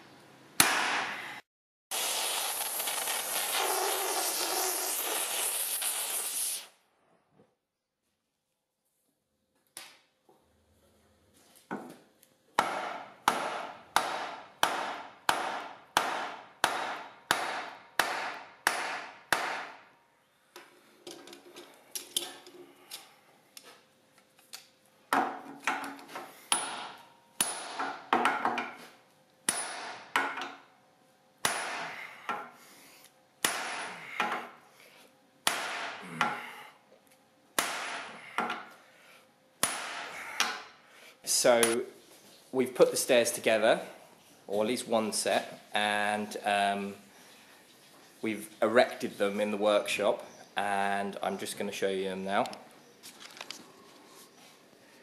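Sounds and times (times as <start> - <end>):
hammer striking hot rivet: 12.6 - 19.8, 26.5 - 28.8, 29.5 - 30.6, 31.4 - 32.5, 33.4 - 34.5, 35.4 - 36.5, 37.6 - 38.7, 39.6 - 40.7.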